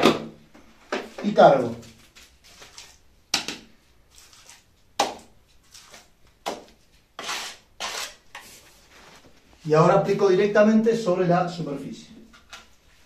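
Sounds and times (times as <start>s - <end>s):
trowel scraping plaster: 7.2s - 8.6s
soft scuffs: 8.4s - 9.7s.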